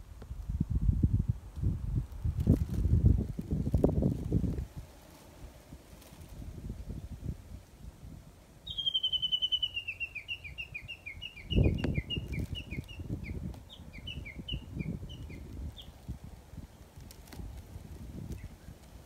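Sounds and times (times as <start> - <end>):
low rumbling microphone noise: 0.0 - 8.6
songbird singing: 8.3 - 19.0.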